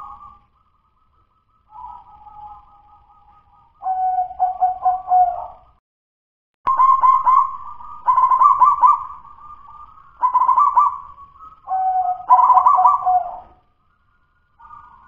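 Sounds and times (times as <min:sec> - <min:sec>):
dove cooing in trills: 0:01.7 - 0:05.7, 0:06.7 - 0:13.6.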